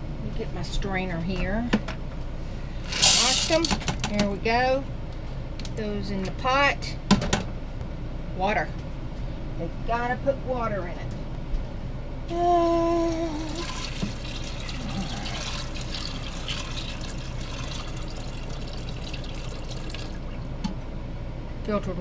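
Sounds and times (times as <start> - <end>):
water pouring into a pot: 12.8 - 20.6.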